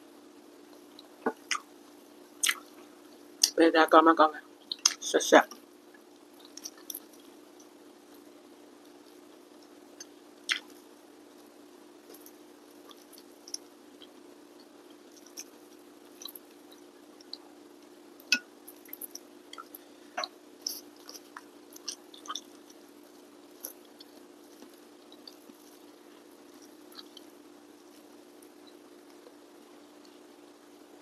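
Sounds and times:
faint steady hum: 0:00.0 - 0:31.0
fingers squishing food: 0:04.7 - 0:07.4, 0:08.8 - 0:29.4.

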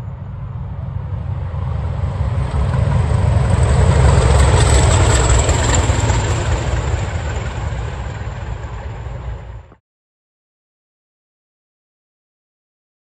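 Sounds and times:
diesel locomotive engine rumble: 0:00.0 - 0:09.8
train wheels on rails: 0:00.2 - 0:09.8.

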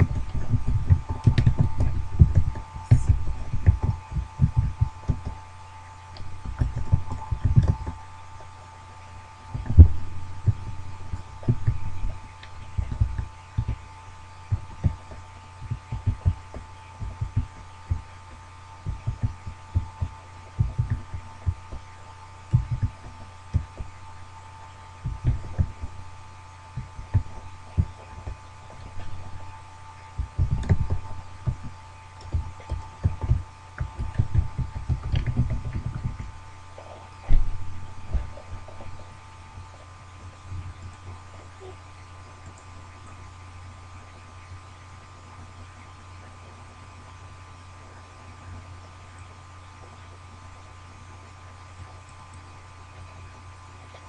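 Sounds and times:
soft low thuds: 0:00.0 - 0:05.4, 0:09.5 - 0:13.8, 0:18.8 - 0:21.9, 0:22.5 - 0:24.1, 0:30.1 - 0:39.7
steady hum: 0:00.0 - 0:54.0.

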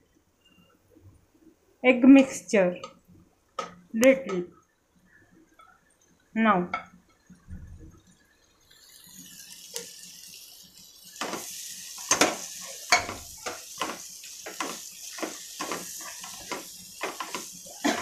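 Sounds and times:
food sizzling in a pan: 0:05.0 - 0:18.0
spatula scraping a pan: 0:11.2 - 0:18.0.

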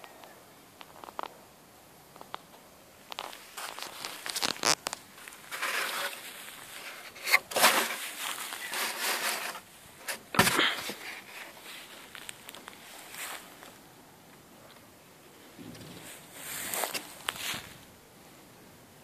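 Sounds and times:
rustling in dry grass: 0:02.1 - 0:14.0, 0:15.3 - 0:18.4.

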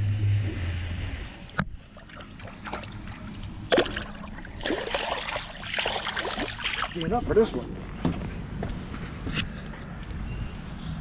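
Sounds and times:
water bubbling: 0:00.0 - 0:07.1
water splashing: 0:01.8 - 0:07.3.

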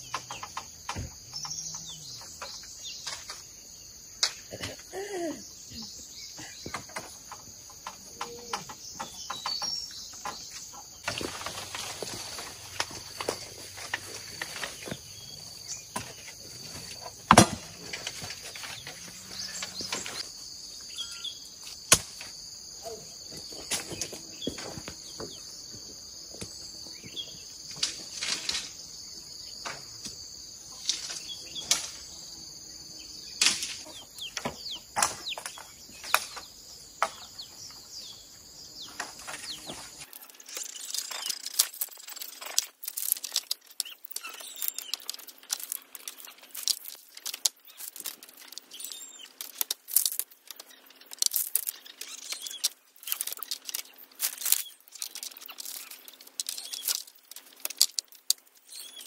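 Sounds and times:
bamboo poles clicking and knocking: 0:00.0 - 0:03.6, 0:04.2 - 0:05.0, 0:06.6 - 0:20.3, 0:27.7 - 0:28.9, 0:29.6 - 0:32.1, 0:33.4 - 0:37.8, 0:38.9 - 0:59.0
high insect chorus: 0:00.0 - 0:59.0
footsteps: 0:10.5 - 0:15.2.

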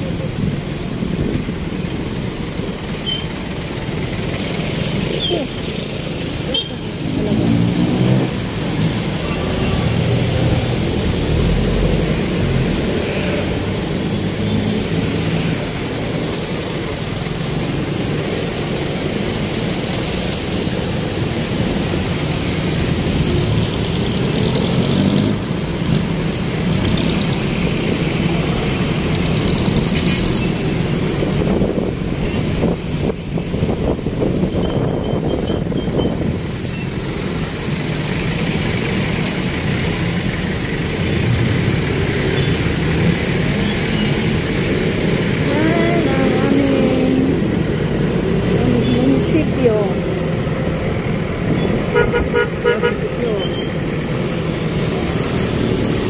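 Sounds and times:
wind and road noise: 0:00.0 - 0:56.0
thin high squeals: 0:03.0 - 0:03.4.

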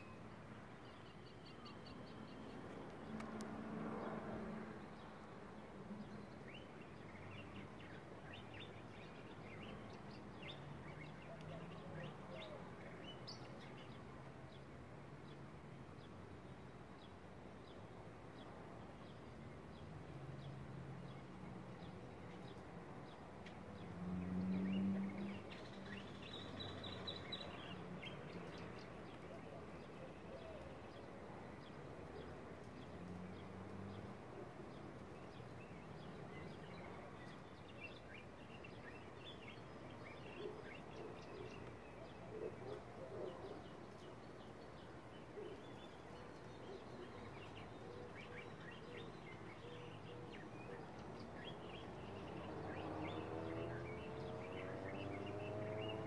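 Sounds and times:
distant bird chirps: 0:35.2 - 0:56.0.

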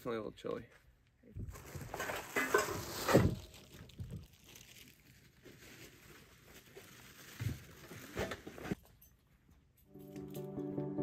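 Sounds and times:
plastic bags rustling: 0:01.4 - 0:08.8.

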